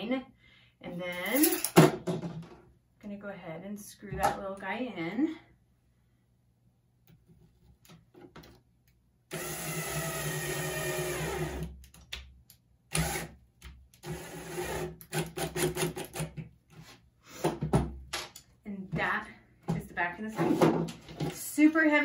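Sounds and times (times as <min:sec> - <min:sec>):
cordless drill driving screw: 0:09.3 - 0:11.7, 0:12.9 - 0:13.3.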